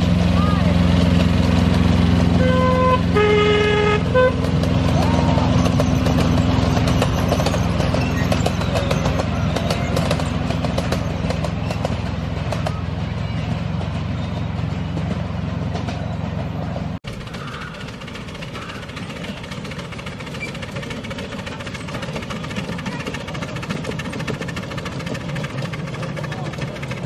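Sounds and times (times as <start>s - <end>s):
locomotive engine droning: 0.0s - 27.0s
two-tone train horn: 2.3s - 4.6s.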